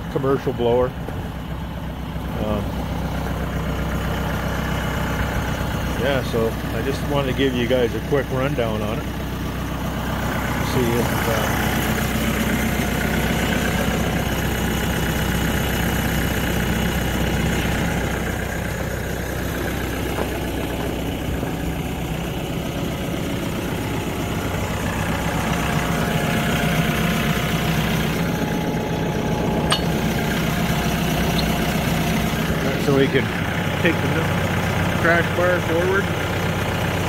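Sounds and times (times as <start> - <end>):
diesel tractor engine idling: 0.0 - 37.0.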